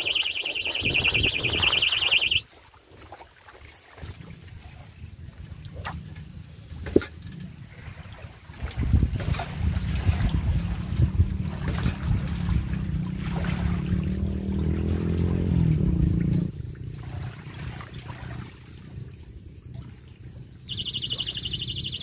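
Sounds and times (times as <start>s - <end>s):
pulsing high electronic tone: 0.0s - 2.4s, 20.7s - 22.0s
wind rumble on microphone: 4.0s - 20.7s.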